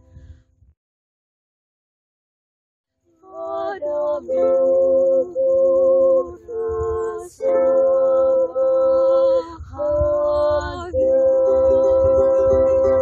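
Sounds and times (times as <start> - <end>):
wind rumble on microphone: 0.0 - 0.7, 3.4 - 13.0
women singing slow song: 3.2 - 13.0
ukulele: 3.3 - 13.0.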